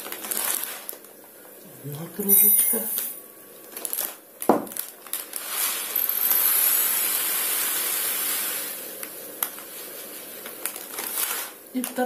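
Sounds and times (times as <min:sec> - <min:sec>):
dry grains pouring into a mug: 0:05.2 - 0:09.0, 0:09.6 - 0:11.6.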